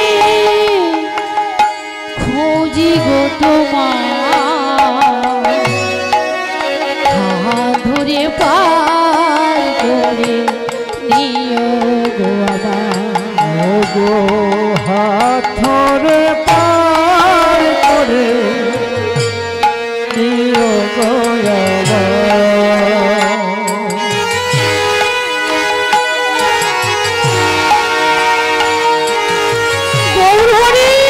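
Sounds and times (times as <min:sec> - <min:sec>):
drum strokes keeping a beat: 0:00.0 - 0:31.0.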